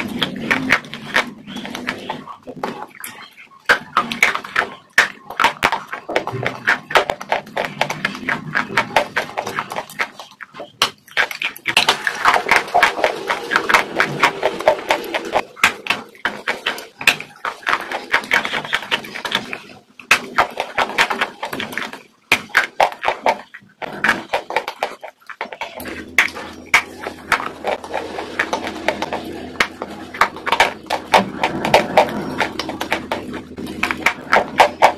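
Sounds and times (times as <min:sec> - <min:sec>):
chewing crunchy food: 0:00.0 - 0:34.9.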